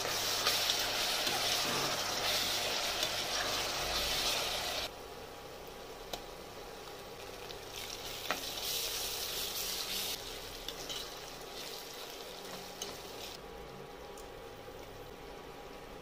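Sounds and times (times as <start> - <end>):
onions sizzling in hot oil: 0.0 - 13.4
spoon stirring in a pot: 9.9 - 13.4.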